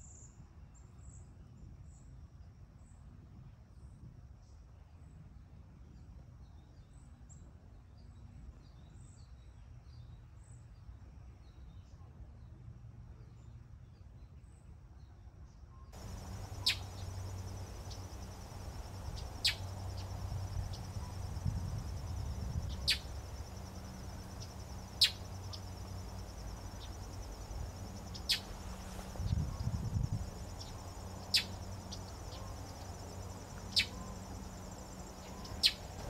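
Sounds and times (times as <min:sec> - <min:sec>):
insects trilling: 0:16.0 - 0:36.0
low hum: 0:16.0 - 0:36.0.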